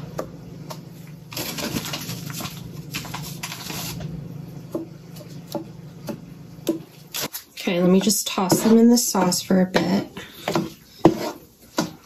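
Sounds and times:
steady low hum: 0.0s - 12.0s
rustling and handling noises: 0.6s - 4.2s.

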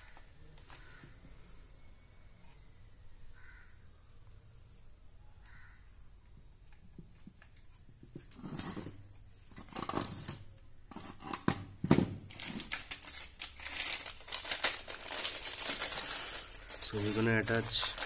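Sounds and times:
plastic bag crinkling: 12.3s - 18.0s.

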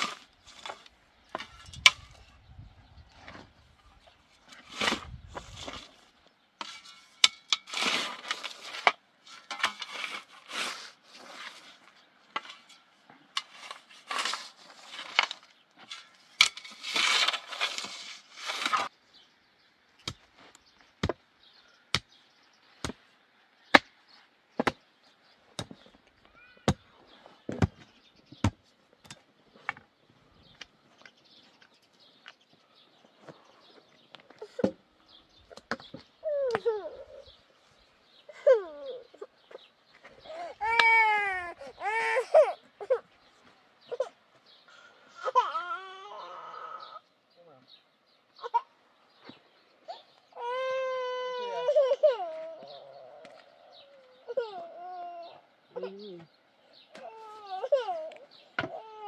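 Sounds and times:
shovel scraping stony soil: 0.0s - 2.4s, 4.4s - 19.0s.

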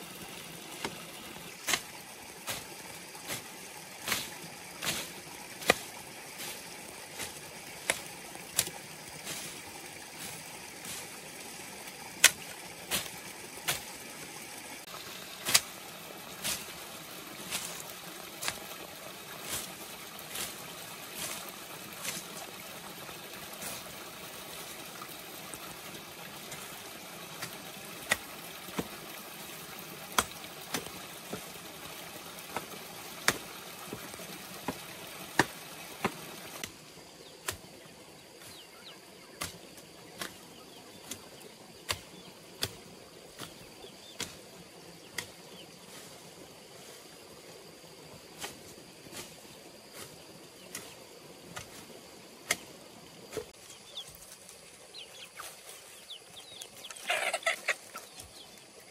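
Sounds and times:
machete chopping weeds: 0.7s - 6.6s, 7.2s - 9.5s, 12.2s - 14.0s, 15.2s - 16.8s, 17.4s - 18.8s, 19.4s - 20.6s, 21.2s - 22.5s, 27.4s - 29.2s, 30.1s - 31.6s, 32.4s - 36.8s, 37.4s - 37.7s, 39.4s - 42.8s, 43.4s - 44.4s, 52.4s - 52.7s.

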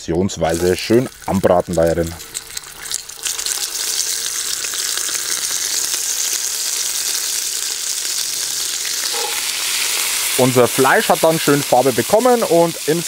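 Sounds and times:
meat sizzling in hot oil: 0.3s - 13.0s.

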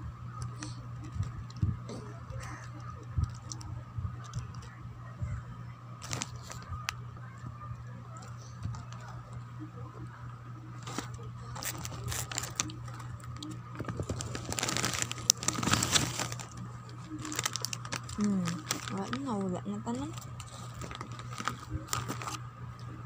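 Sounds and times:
plastic wrapper crinkling: 6.0s - 7.0s, 10.8s - 22.4s.

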